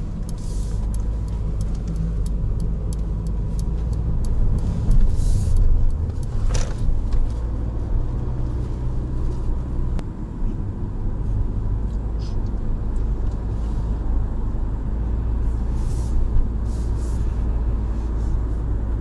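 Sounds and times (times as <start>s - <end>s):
car engine and road noise drone: 0.0s - 19.0s
faint light ticks: 0.2s - 7.4s.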